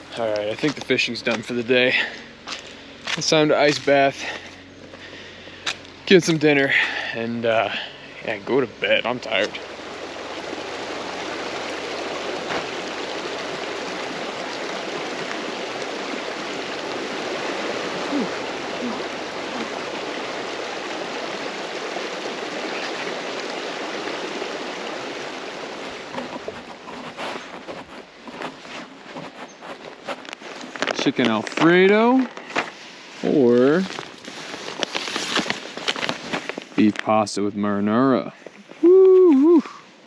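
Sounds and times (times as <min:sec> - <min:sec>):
river water rushing over stones: 0:09.0 - 0:29.1.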